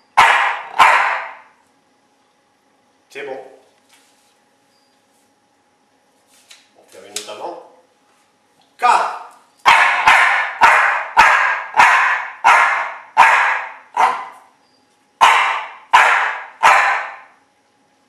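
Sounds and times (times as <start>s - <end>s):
small dog barking: 0.2s - 1.5s, 9.6s - 14.5s, 15.2s - 17.4s.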